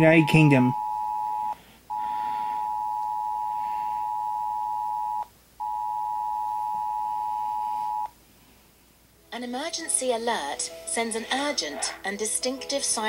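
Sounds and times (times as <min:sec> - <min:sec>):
piercing phone alert tone: 0:00.0 - 0:08.1.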